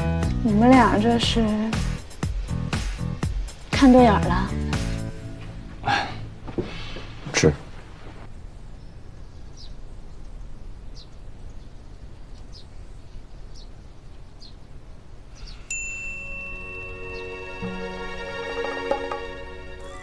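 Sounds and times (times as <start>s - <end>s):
soft background music: 0.0s - 8.1s, 16.5s - 20.0s
bright chime: 15.7s - 18.2s.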